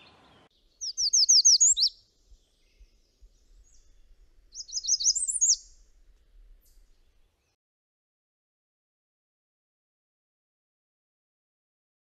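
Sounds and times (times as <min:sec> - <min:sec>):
bird singing: 0:00.0 - 0:07.6.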